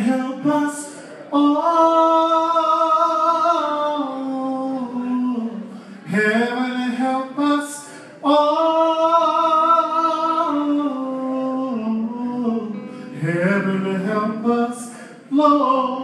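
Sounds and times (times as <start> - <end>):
man singing long notes: 0.0 - 16.0.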